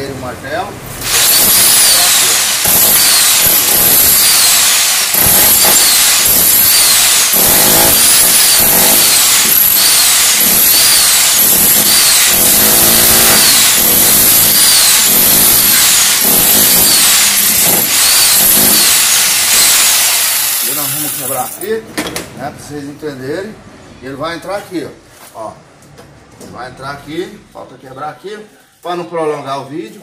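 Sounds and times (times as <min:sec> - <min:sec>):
rotary hammer chiselling brick: 0:01.1 - 0:20.8.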